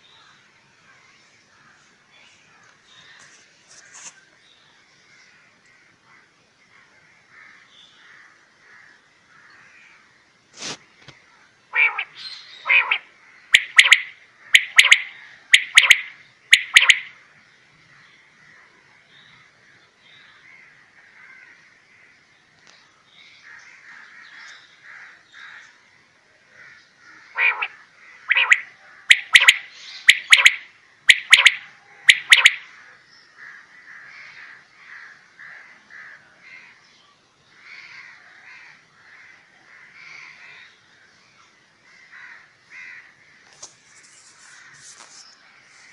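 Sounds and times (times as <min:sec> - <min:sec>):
quail calling: 0:11.7 - 0:17.1, 0:27.3 - 0:32.8
faint chirping: 0:27.4 - 0:32.6.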